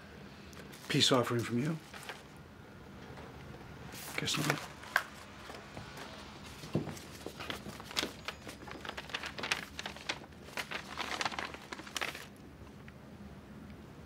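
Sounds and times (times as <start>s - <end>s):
paper envelope tearing: 0.7s - 2.3s, 4.0s - 5.1s, 7.0s - 12.4s.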